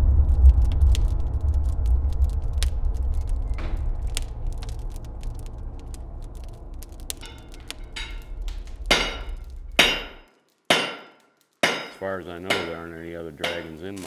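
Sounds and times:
fire rumbling and crackling: 0:00.0 - 0:14.0
hammer striking anvil: 0:07.2 - 0:08.3, 0:08.9 - 0:14.0.

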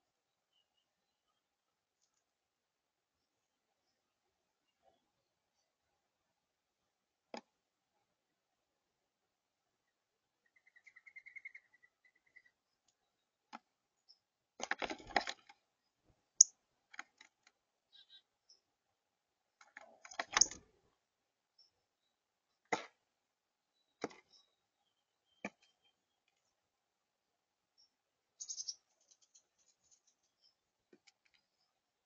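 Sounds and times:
bird trill: 0:10.4 - 0:12.7, 0:17.9 - 0:18.6, 0:27.8 - 0:30.6
birds tapping on feeder tray: 0:14.6 - 0:15.6, 0:19.6 - 0:20.7.

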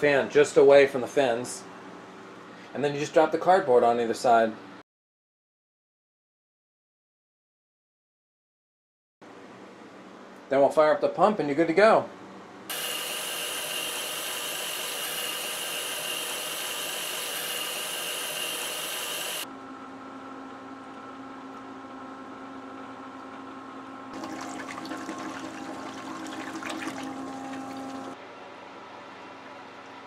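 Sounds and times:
water pump motor hum: 0:12.7 - 0:19.4, 0:24.1 - 0:28.2
water splashing and bubbling: 0:24.2 - 0:28.2.

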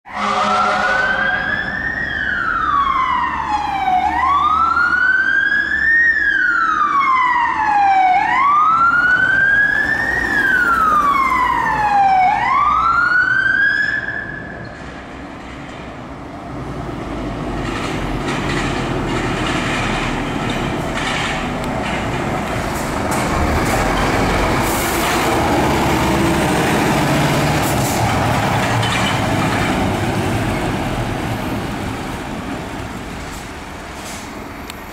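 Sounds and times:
fire engine siren wailing: 0:00.1 - 0:14.7
diesel engine rumbling: 0:14.7 - 0:34.9.

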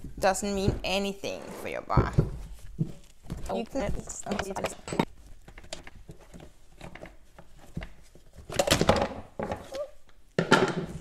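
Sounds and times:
chainsaw scraping on wooden bench: 0:01.2 - 0:02.2.

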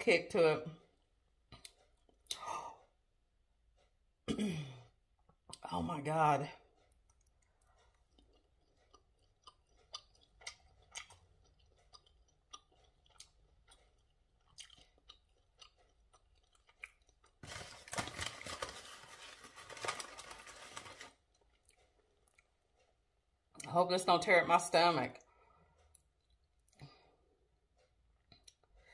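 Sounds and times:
person chewing food: 0:01.0 - 0:02.4, 0:06.6 - 0:23.6, 0:25.2 - 0:28.9.

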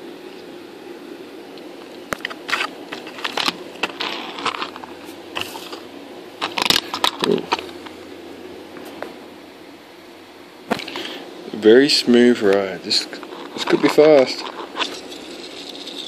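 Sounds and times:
toy car clicking and scraping: 0:02.2 - 0:05.8, 0:13.1 - 0:16.0.

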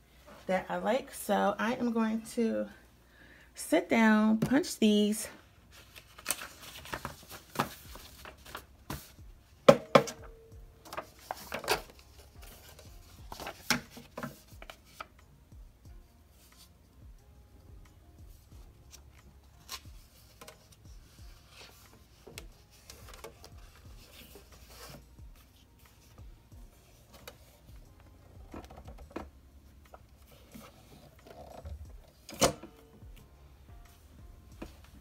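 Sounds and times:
paper rustling: 0:05.7 - 0:09.2, 0:10.8 - 0:15.2, 0:19.6 - 0:27.7.

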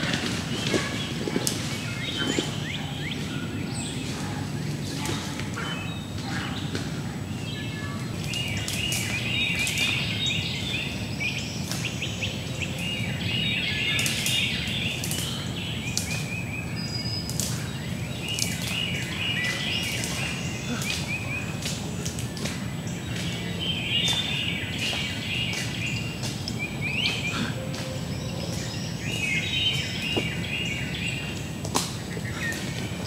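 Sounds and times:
songbirds singing: 0:00.0 - 0:33.0
short bird chips: 0:13.7 - 0:33.0.

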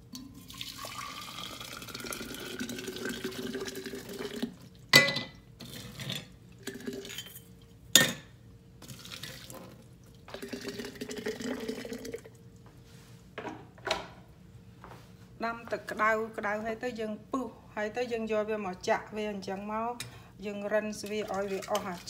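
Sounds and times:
hot water pouring into glass jar: 0:00.2 - 0:04.6, 0:05.6 - 0:07.4, 0:10.3 - 0:12.3.

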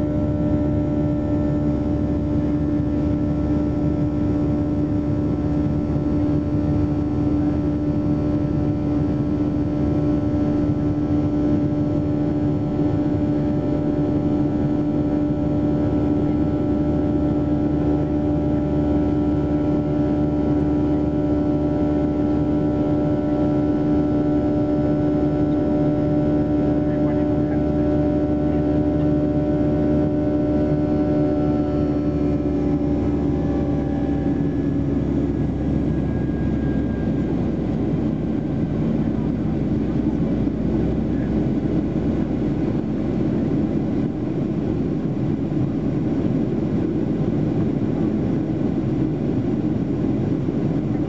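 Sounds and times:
jet engine drone: 0:00.0 - 0:51.0.

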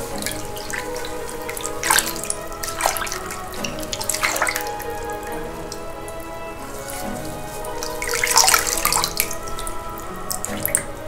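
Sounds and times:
background music: 0:00.0 - 0:11.0
water sloshing in a plastic tub: 0:00.0 - 0:11.0.

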